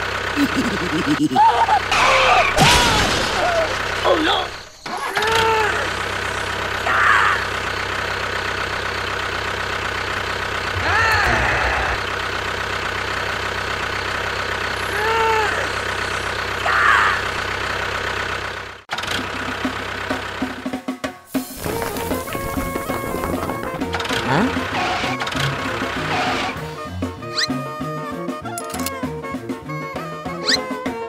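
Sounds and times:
small tractor engine idling: 0.0s - 2.6s, 3.6s - 26.8s.

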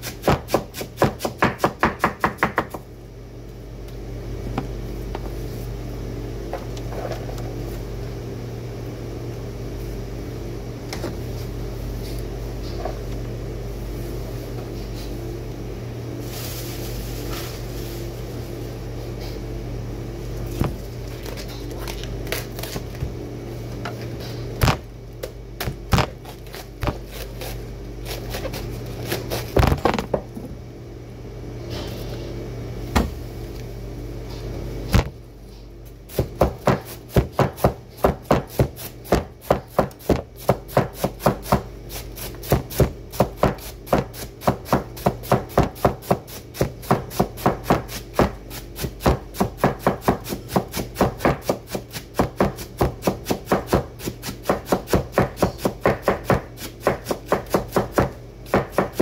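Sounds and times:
cleaver chopping cabbage on board: 0.0s - 2.8s, 36.1s - 59.0s.

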